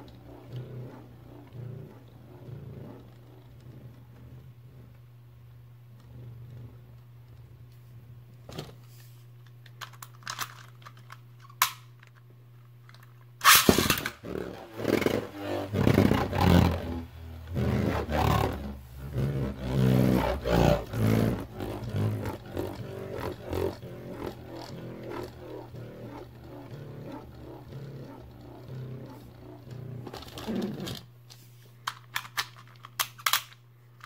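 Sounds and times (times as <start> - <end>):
spinning top humming: 0.0 - 8.4, 13.4 - 31.9
loud rough pulsing sound: 14.3 - 31.0.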